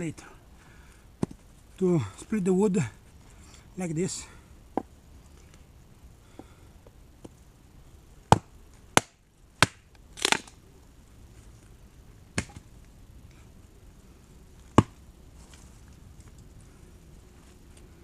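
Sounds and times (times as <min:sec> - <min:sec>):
axe splitting wood: 0:08.3 - 0:10.5, 0:12.4 - 0:12.6, 0:14.8 - 0:15.0.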